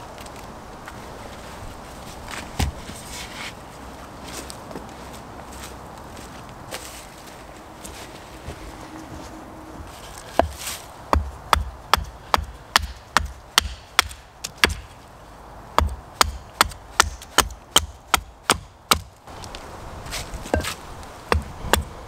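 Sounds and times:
hatchet chopping wooden stake: 0:10.3 - 0:15.0, 0:15.8 - 0:19.2, 0:20.5 - 0:22.0.

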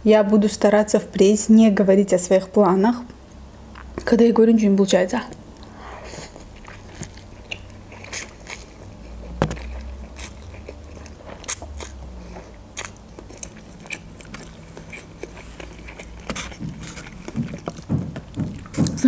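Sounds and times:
chewing: 0:05.3 - 0:19.0
wet mouth clicks: 0:11.5 - 0:17.8.

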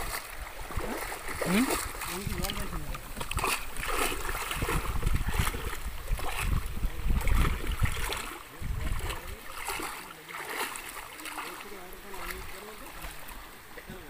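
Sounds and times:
wind on microphone: 0:00.0 - 0:09.9
water lapping against boat: 0:00.0 - 0:14.0.

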